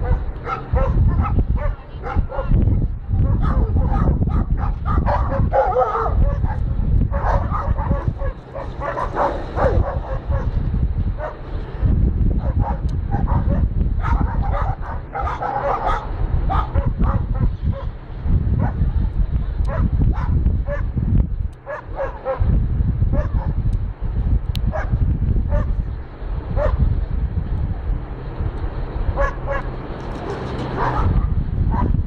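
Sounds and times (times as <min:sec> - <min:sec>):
dog barking: 0:00.0 - 0:02.6, 0:03.2 - 0:10.6, 0:11.2 - 0:11.4, 0:12.4 - 0:17.9, 0:19.7 - 0:20.9, 0:21.7 - 0:22.5, 0:23.2 - 0:23.6, 0:24.7 - 0:25.8, 0:26.6 - 0:26.8, 0:29.2 - 0:29.7, 0:30.8 - 0:32.0
low rumble: 0:00.0 - 0:32.0.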